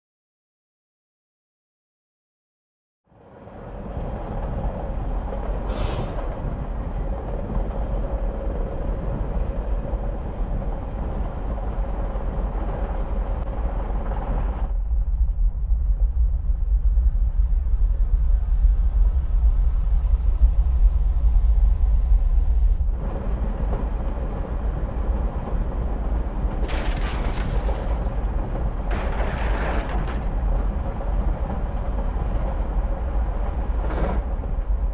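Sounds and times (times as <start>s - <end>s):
train rumbling inside carriage: 3.1s - 34.9s.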